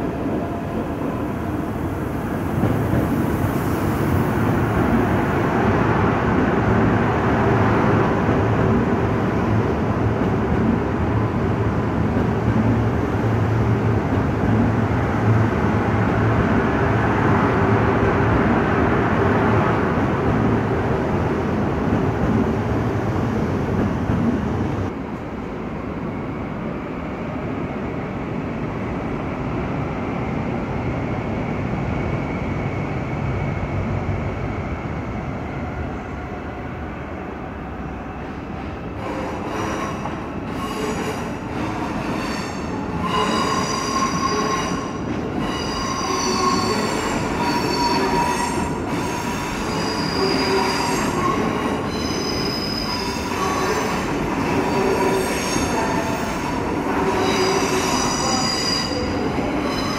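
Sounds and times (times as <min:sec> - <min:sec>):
train wheels squealing: 0:39.0 - 0:59.9.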